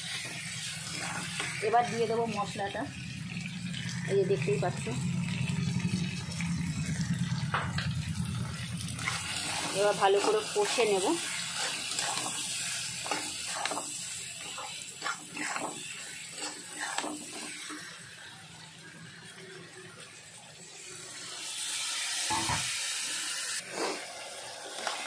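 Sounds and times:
frying sizzle: 0.0s - 25.0s
spatula scraping iron pan: 0.1s - 2.0s, 9.0s - 17.9s.

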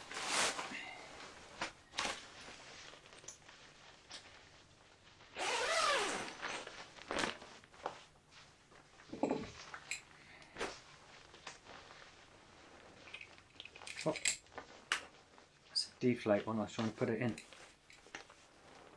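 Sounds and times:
fabric rustling: 0.0s - 18.9s
zip pulled open: 5.4s - 7.3s.

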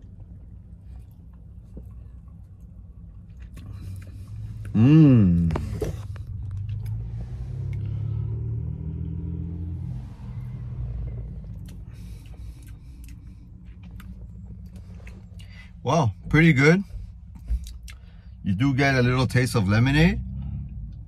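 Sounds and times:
steady low hum: 0.0s - 21.0s
vehicle rumble: 0.0s - 21.0s
man humming: 4.7s - 5.8s.

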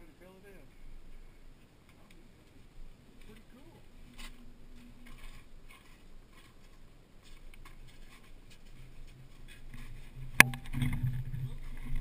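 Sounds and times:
footsteps on crusted snow: 3.2s - 10.4s
low hum: 8.5s - 12.0s.

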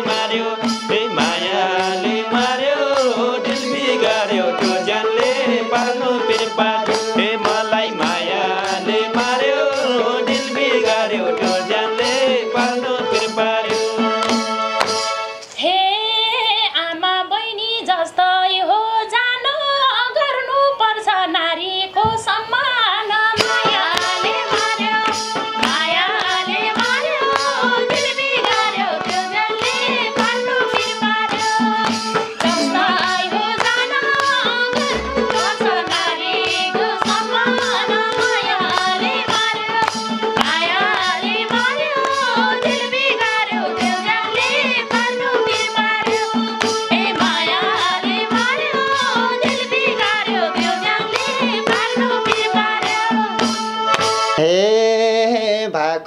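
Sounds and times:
clapped percussive beat: 0.0s - 15.1s, 23.4s - 54.4s
women singing: 0.0s - 54.4s
keyboard melody: 32.2s - 33.6s, 34.7s - 35.9s.

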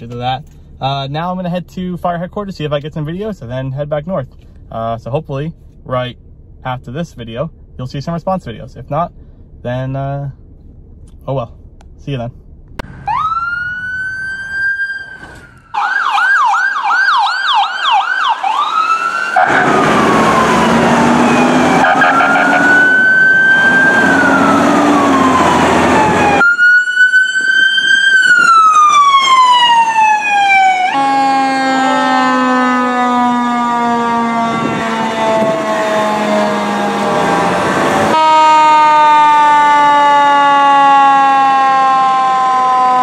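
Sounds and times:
electronic sirens wailing: 12.8s - 43.0s
passing truck noise: 18.1s - 40.9s
low air horn blasts: 30.9s - 39.4s.

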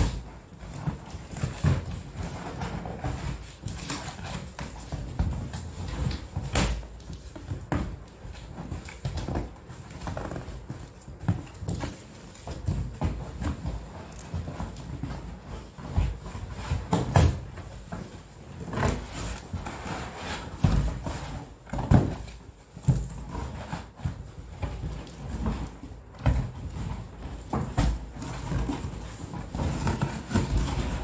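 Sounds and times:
cardboard rubbing and scraping: 0.0s - 31.0s
items knocking and rustling: 0.0s - 31.0s.

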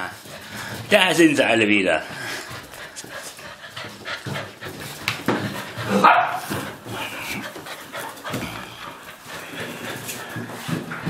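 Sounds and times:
puppies scuffling: 0.0s - 11.0s
puppy barking: 5.8s - 6.6s.

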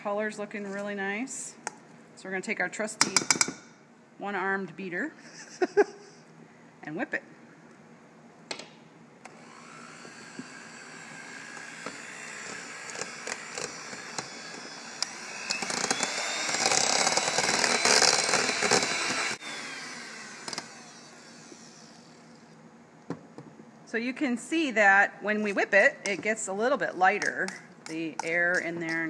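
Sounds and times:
electric mixer whining: 9.3s - 22.5s.

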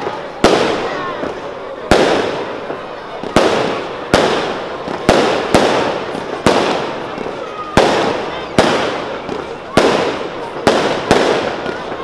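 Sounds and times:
firework bangs with echoing rumble: 0.0s - 12.0s.

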